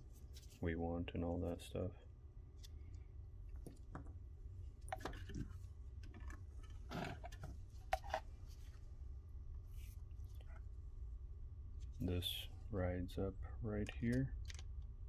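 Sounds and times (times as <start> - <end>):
low room hum: 0.0 - 15.0
plastic parts clicking and tapping: 13.8 - 14.7.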